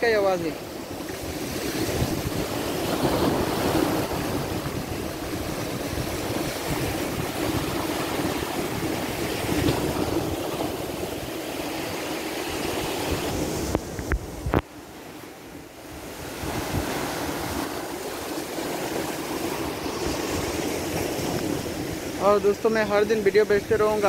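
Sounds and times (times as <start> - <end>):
wind rumbling on microphone: 0.0 - 24.0
surf breaking against rocks: 0.4 - 14.6.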